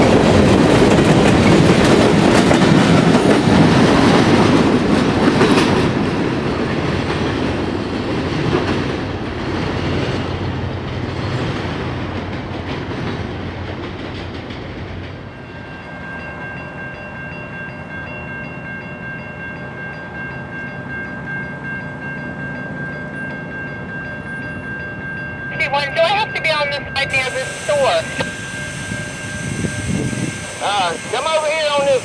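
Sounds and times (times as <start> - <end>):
wheel clatter on rails: 0.0 - 10.2
freight train rumbling: 0.0 - 32.0
distant train horn: 25.5 - 32.0.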